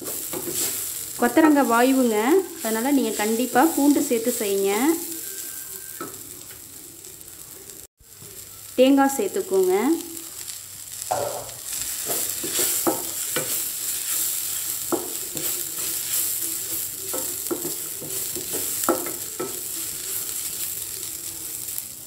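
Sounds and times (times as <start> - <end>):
spatula scraping and knocking pan: 0.0 - 4.4, 11.1 - 20.2
food sizzling: 0.0 - 22.0.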